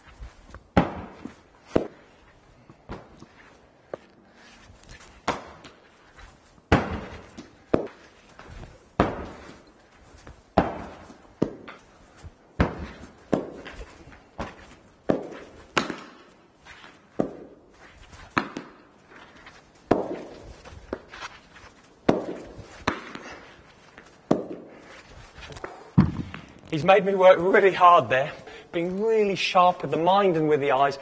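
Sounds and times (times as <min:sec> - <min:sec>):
ball thudding on turf: 0:00.7 - 0:02.0, 0:22.0 - 0:23.2, 0:26.0 - 0:26.7
ball knocking off cricket bat: 0:00.8 - 0:02.0, 0:14.4 - 0:16.3, 0:19.9 - 0:21.1, 0:22.0 - 0:23.3, 0:26.0 - 0:26.6.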